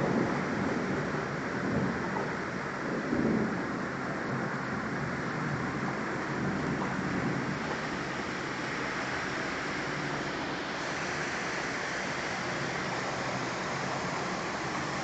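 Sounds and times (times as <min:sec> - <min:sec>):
heavy rain: 0:00.0 - 0:15.0
strong wind: 0:00.0 - 0:15.0.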